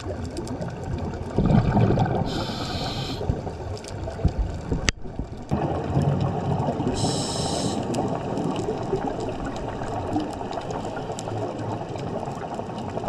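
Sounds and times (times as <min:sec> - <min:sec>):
faint underwater clicks: 0:00.0 - 0:13.0
muffled underwater rush: 0:00.0 - 0:13.0
scuba regulator hissing: 0:02.3 - 0:03.2, 0:07.0 - 0:07.8.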